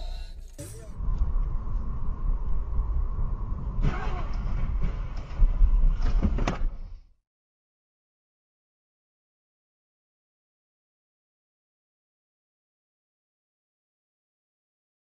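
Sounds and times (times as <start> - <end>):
sharp impacts: 0.0 - 1.2
road and engine rumble: 0.0 - 6.4.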